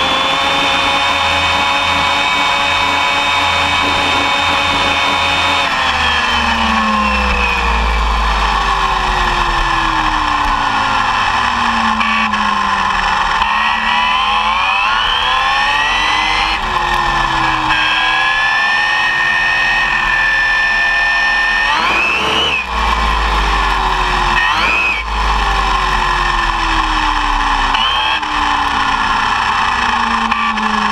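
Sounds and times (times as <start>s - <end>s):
electric motor whining: 0.0s - 30.9s.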